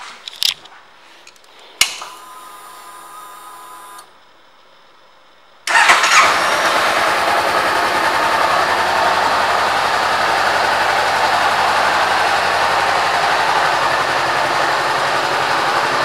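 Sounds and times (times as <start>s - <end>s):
motorcycle engine starting and idling: 5.7s - 16.0s.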